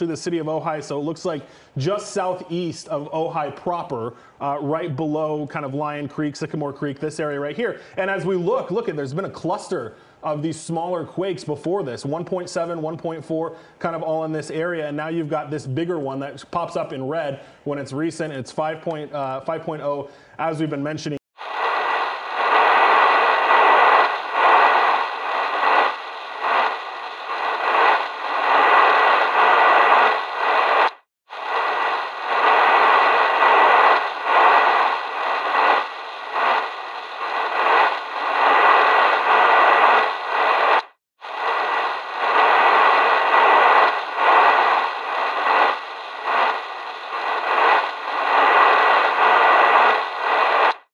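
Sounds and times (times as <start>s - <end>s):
harsh static hiss: 21.4s - 50.9s
thin steady whine: 21.4s - 50.9s.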